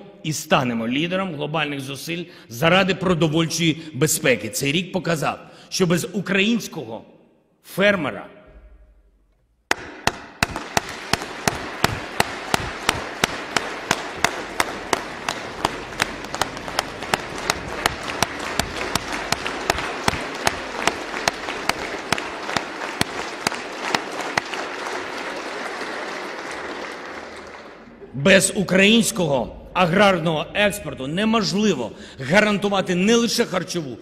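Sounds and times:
rhythmic clapping beat: 9.7s - 28.1s
large audience applauding: 10.1s - 28.2s.

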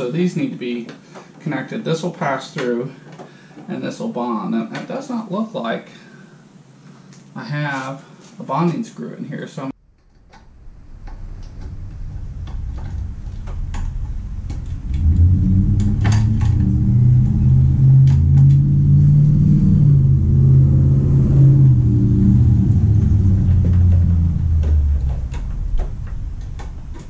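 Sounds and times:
low mechanical rumble: 9.8s - 27.0s.

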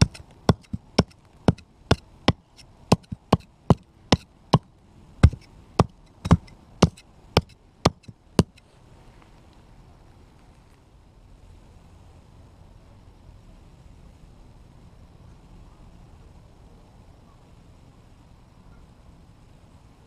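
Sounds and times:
knife striking clay brick: 0.0s - 4.3s, 5.2s - 8.6s.

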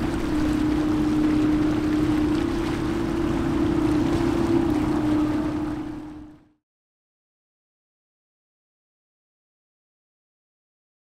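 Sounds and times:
wind: 0.0s - 6.5s
steady low hum: 0.0s - 6.6s
water noise: 0.0s - 6.6s.

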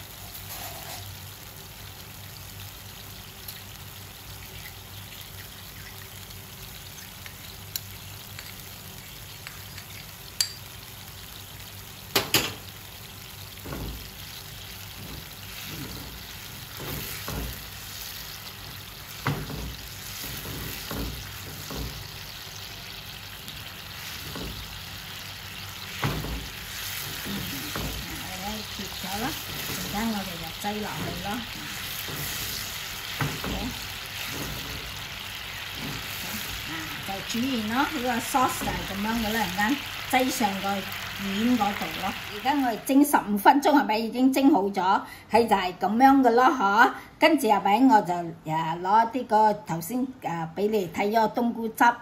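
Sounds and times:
sauce simmering with a hiss: 0.0s - 43.0s
spatula stirring and scraping: 0.2s - 1.2s, 13.6s - 39.9s
sharp knocks: 19.2s - 22.1s.

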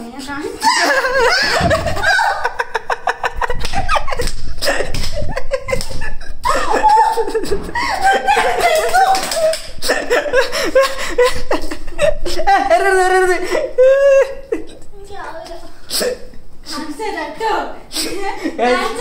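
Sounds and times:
young woman laughing: 0.6s - 14.8s.

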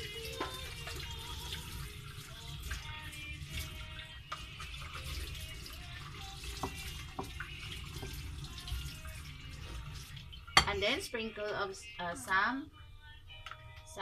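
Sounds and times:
batter being stirred in a bowl: 0.0s - 10.7s.

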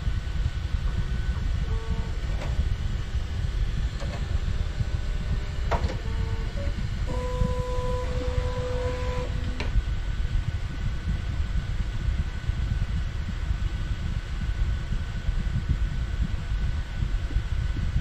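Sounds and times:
printer low hum: 0.0s - 10.7s
stepper motors whining: 0.7s - 9.8s.

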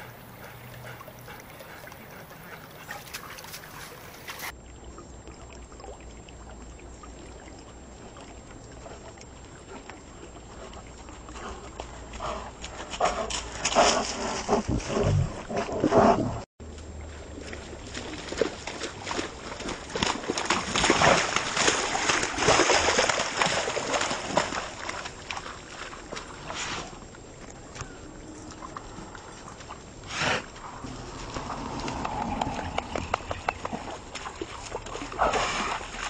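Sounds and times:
dog splashing through water: 0.0s - 4.5s, 17.0s - 27.0s, 28.5s - 36.0s.

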